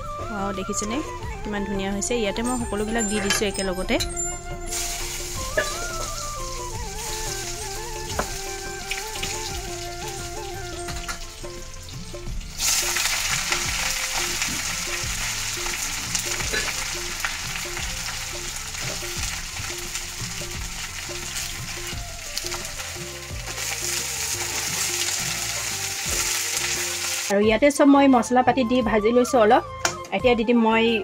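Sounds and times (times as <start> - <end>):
vegetables sizzling in hot oil: 4.7 - 27.3.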